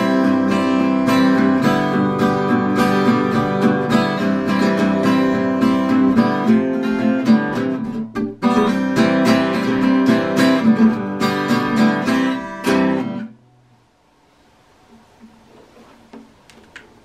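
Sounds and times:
acoustic guitar strumming: 0.0 - 13.8.

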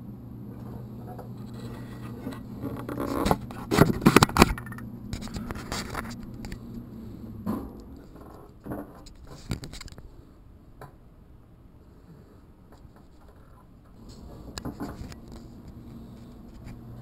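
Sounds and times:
steady low hum: 0.0 - 17.0
scraping and rustling handling: 1.1 - 6.7, 12.7 - 16.9.

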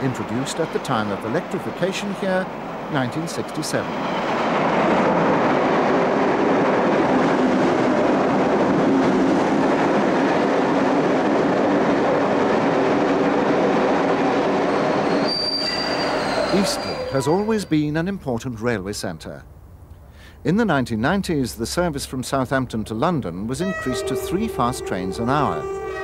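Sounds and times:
train wheels rumbling on rail: 0.0 - 18.2.

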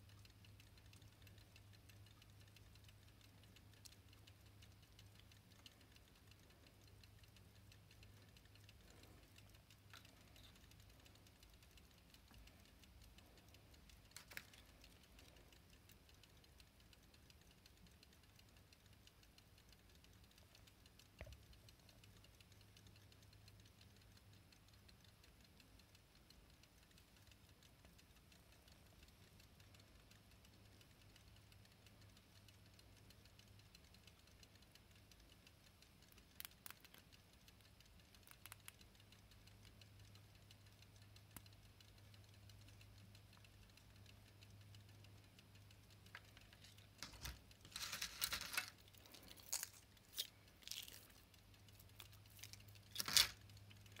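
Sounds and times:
pocket watches ticking: 0.0 - 54.0
watch key clicks: 0.0 - 54.0
metal watches clinking: 46.1 - 54.0.

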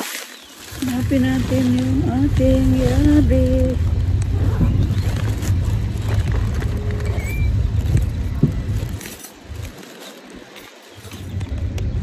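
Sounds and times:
plastic bag rustling: 0.0 - 12.0
wind buffeting microphone: 0.7 - 9.7.

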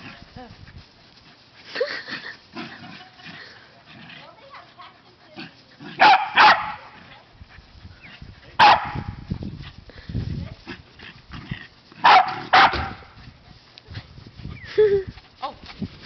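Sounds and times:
dog barking: 6.0 - 6.9, 8.6 - 9.2, 12.0 - 13.1.

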